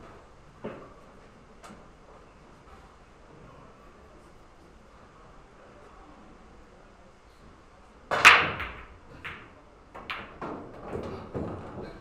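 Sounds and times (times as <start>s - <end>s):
cue striking ball: 8.1s - 10.7s
pool balls knocking: 8.1s - 11.8s.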